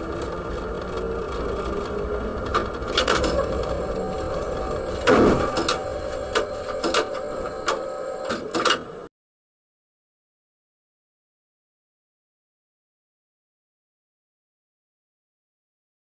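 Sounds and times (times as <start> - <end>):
tram hum: 0.0 - 9.1.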